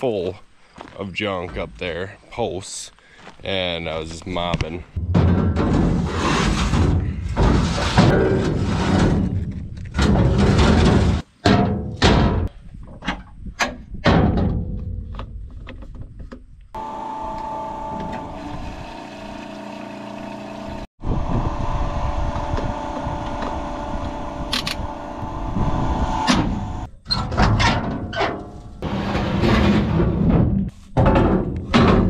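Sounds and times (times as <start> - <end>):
sharp clanks and knocks: 4.6 - 16.5, 26.2 - 32.0
machine hum: 16.8 - 26.9.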